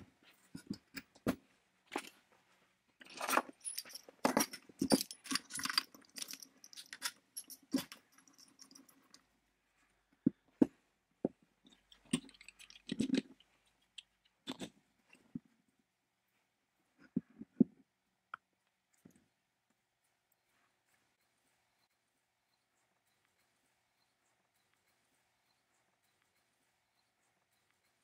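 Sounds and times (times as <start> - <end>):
metal parts clinking: 3.0 - 9.2.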